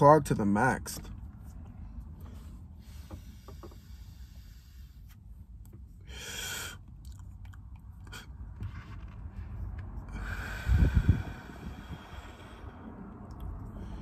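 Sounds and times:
rush of breath: 0:10.1 - 0:14.0.

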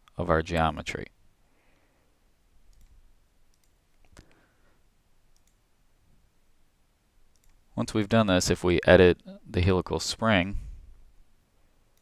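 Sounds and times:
faint computer mouse clicks: 0:02.7 - 0:04.4, 0:05.3 - 0:05.6, 0:07.3 - 0:07.6.

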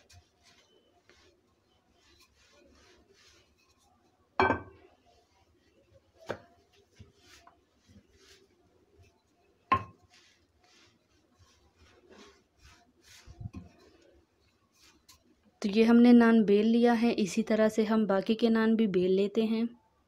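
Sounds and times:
rolling pin swishing on dough: 0:00.0 - 0:15.6
wooden rolling pin knocks: 0:09.7 - 0:10.0.

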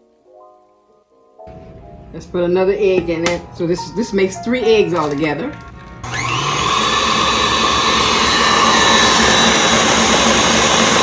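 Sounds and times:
stand mixer motor whirring: 0:05.6 - 0:11.0.

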